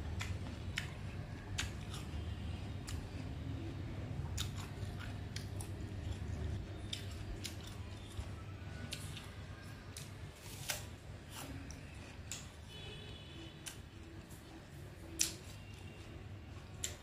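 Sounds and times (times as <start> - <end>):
chewing crisp apple: 0.0 - 12.8.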